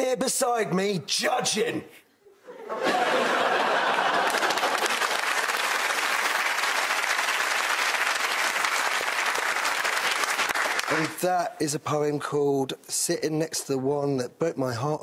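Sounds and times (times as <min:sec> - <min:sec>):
studio audience applauding: 0:03.2 - 0:11.3.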